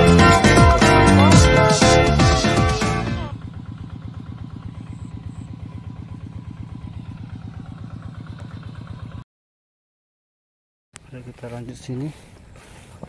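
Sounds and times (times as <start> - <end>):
small engine idling: 0.0 - 9.2.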